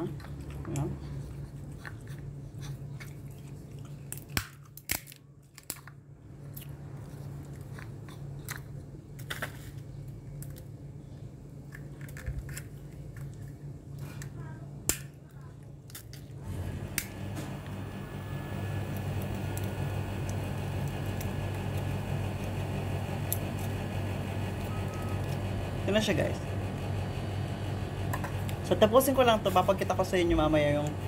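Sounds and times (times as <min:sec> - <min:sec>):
steady low hum: 0:00.0 - 0:31.0
walnut shells cracking: 0:04.0 - 0:06.0, 0:11.6 - 0:13.6, 0:14.2 - 0:16.4.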